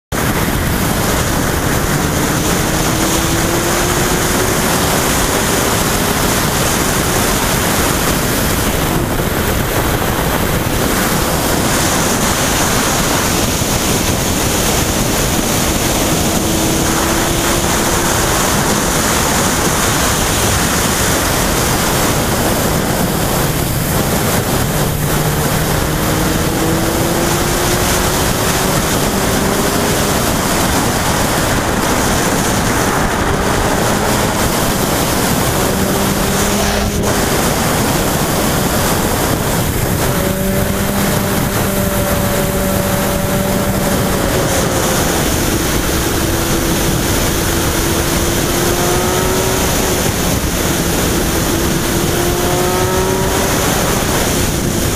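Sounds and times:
faint motorcycle engine accelerating: 0.1 - 54.9
wind rushing over microphone: 0.1 - 54.9.

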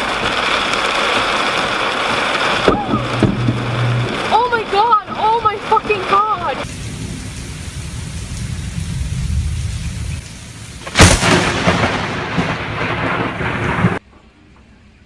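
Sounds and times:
loud thunderclap: 0.0 - 14.0
thunder rumble: 0.0 - 14.7
rain: 0.0 - 15.0.

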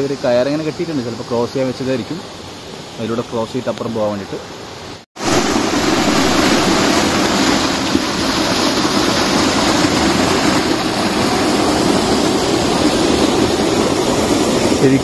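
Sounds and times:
waterfall rushing onto rocks: 0.0 - 15.0.

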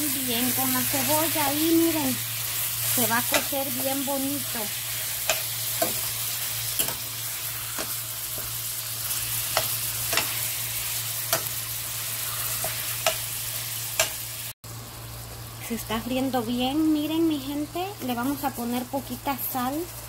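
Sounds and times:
meat sizzling in frying pan: 0.0 - 20.0.

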